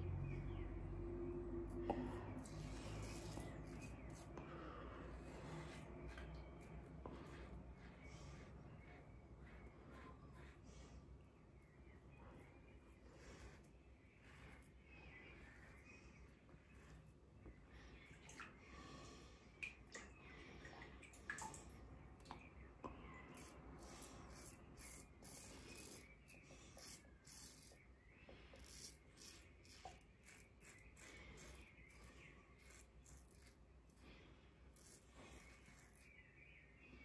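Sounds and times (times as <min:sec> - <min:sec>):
razor scratching stubble: 0:02.3 - 0:11.0, 0:13.0 - 0:17.2, 0:23.2 - 0:27.9, 0:28.5 - 0:34.0, 0:34.7 - 0:36.3.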